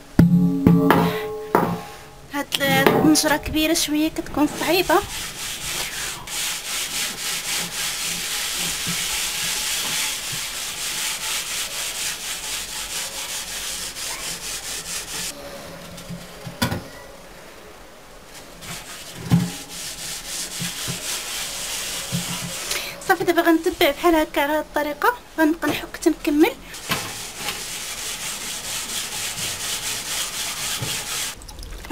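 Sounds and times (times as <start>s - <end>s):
sharp knocks: 0.2s - 2.0s
scouring pad scrubbing metal pot: 2.7s - 15.3s, 18.6s - 24.5s, 26.0s - 31.4s.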